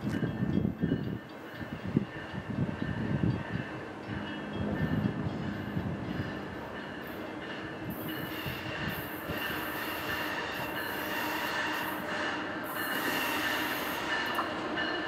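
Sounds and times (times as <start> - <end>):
train hiss: 5.4 - 15.0.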